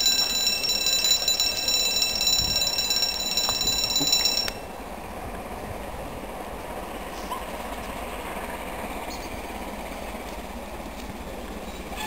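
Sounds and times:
level crossing warning alarm: 0.0s - 4.6s.

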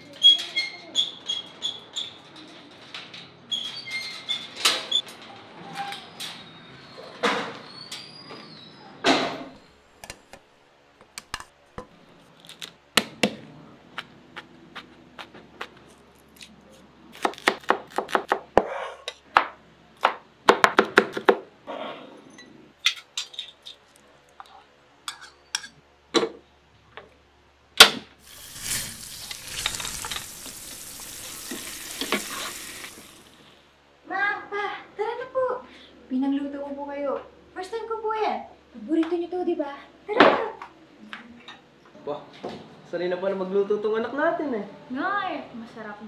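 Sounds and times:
food sizzling in a frying pan: 28.2s - 33.4s
utensils clattering against pan: 28.3s - 32.8s.

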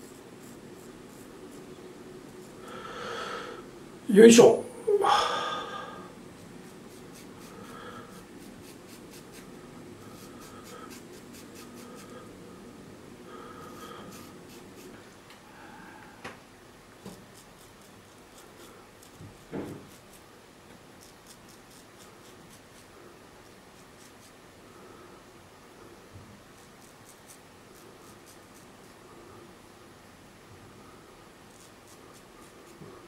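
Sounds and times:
razor scraping stubble: 0.0s - 2.7s, 6.4s - 12.3s, 13.6s - 15.1s, 17.0s - 20.3s, 20.9s - 24.4s, 26.5s - 29.0s, 31.4s - 33.0s.

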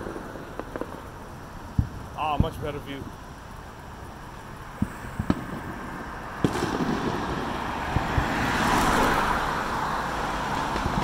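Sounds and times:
distant fireworks bangs: 0.0s - 11.0s
car driving past: 5.5s - 11.0s.

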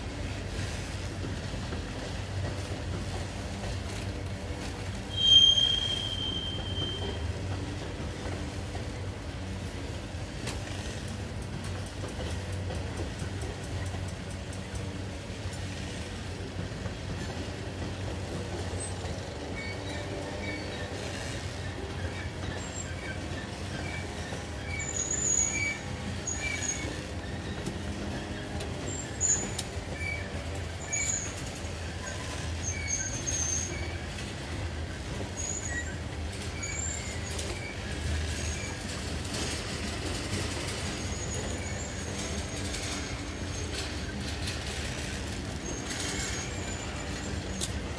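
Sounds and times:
train wheels rumbling on rail: 0.0s - 47.9s
high-pitched squeaks: 5.1s - 7.2s.

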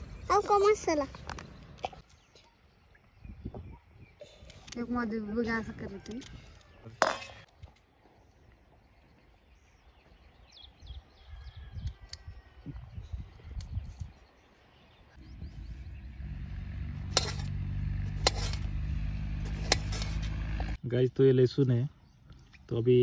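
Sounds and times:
faint bird chirps: 0.0s - 7.0s
low rumbles: 15.2s - 20.8s.

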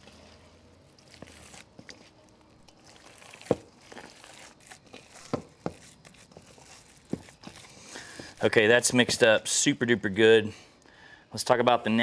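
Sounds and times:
hands squelching meat mixture: 0.0s - 9.4s.

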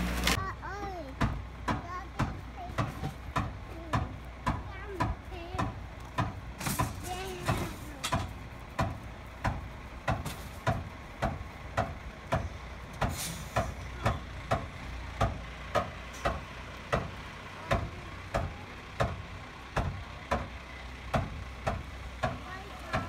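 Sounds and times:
garbage truck engine rumble: 0.0s - 23.0s
short air hiss: 13.1s - 13.8s.

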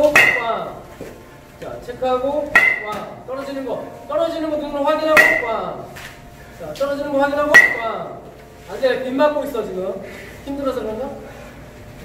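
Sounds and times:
metal bat hitting ball: 0.0s - 0.8s, 2.5s - 3.2s, 5.1s - 6.1s, 7.5s - 8.0s.

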